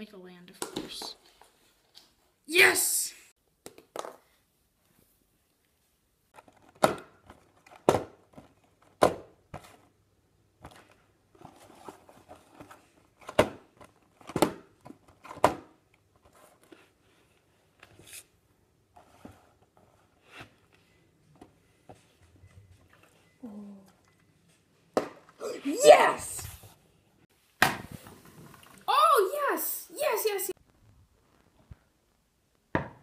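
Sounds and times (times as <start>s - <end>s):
handling and rustling: 10.6s - 15.4s.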